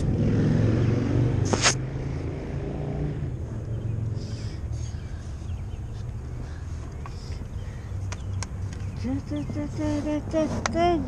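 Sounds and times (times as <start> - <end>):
car engine rumbling: 0.0 - 11.0
sharp click: 1.5 - 1.8.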